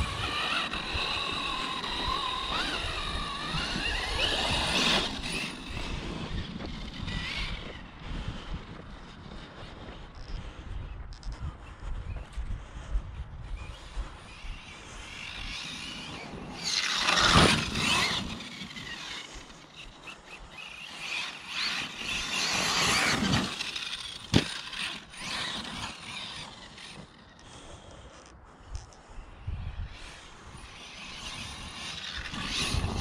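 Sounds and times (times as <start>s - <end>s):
electric motor whining: 0.0s - 8.0s, 14.3s - 27.4s, 29.7s - 33.0s.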